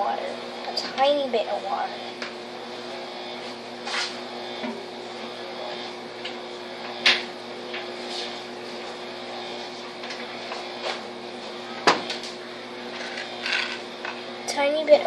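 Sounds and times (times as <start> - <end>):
low electrical appliance hum: 0.0 - 15.0.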